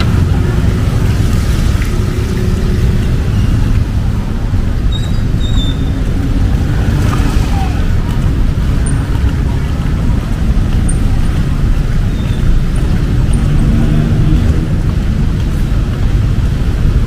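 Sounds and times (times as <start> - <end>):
rumble of passing cars: 0.0 - 17.0
vehicle engine passing: 5.8 - 16.4.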